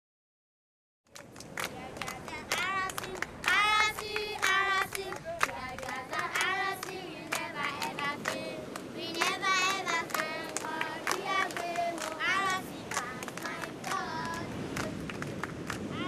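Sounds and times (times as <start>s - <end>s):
sharp claps: 1.1s - 16.0s
high-pitched voices singing: 1.2s - 15.1s.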